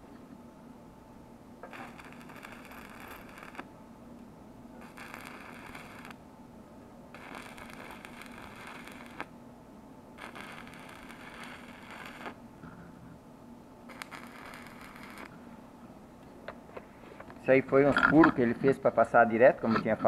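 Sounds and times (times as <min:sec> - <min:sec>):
welding arc crackling and hissing: 0:01.6 - 0:03.7, 0:04.8 - 0:06.2, 0:07.2 - 0:09.3, 0:10.2 - 0:12.4, 0:13.9 - 0:15.4.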